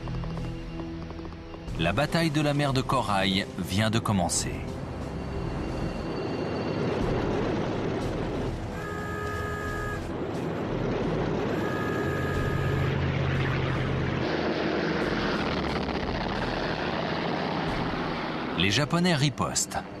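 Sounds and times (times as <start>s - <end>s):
propeller aircraft engines roaring: 5.8s - 20.0s
multi-note tone: 8.8s - 10.1s, 11.5s - 13.8s.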